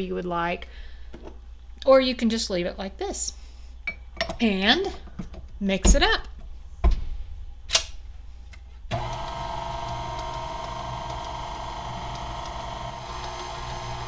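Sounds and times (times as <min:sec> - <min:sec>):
stand mixer motor humming: 0:08.9 - 0:14.0.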